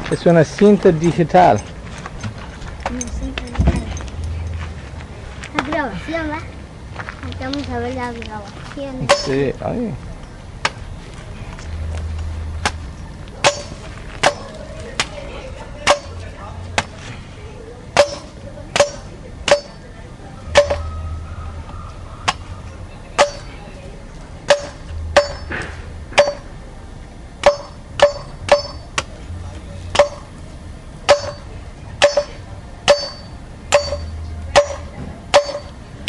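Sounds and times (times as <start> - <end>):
machete chopping coconut: 9.1 - 9.4, 13.4 - 15.2, 15.8 - 16.2, 18.0 - 19.8, 20.5 - 21.0, 22.2 - 22.5, 23.2 - 23.5, 24.5 - 26.5, 27.4 - 29.2, 29.9 - 30.3, 31.1 - 35.8.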